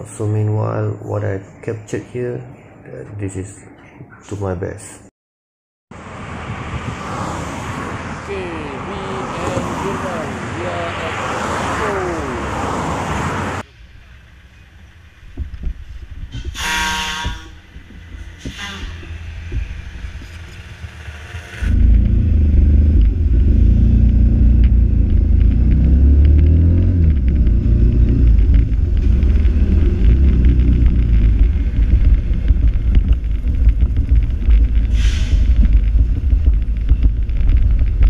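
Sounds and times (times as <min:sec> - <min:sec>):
motorcycle engine and wind buffeting: 0:27.1 - 0:38.0.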